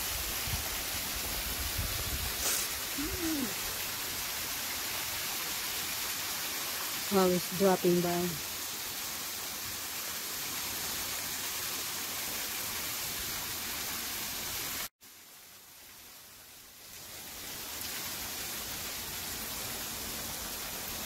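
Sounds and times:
waterfall rushing: 2.2s - 9.0s.

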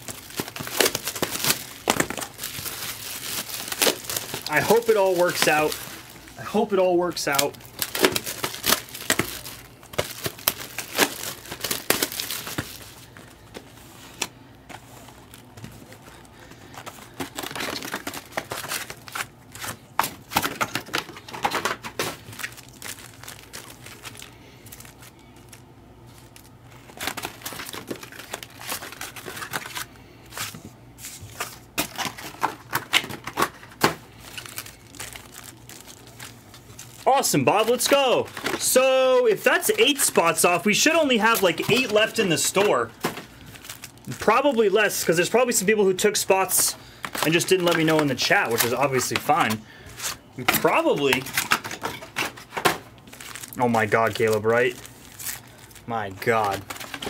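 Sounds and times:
plastic packaging crinkling and tearing: 0.0s - 57.0s.

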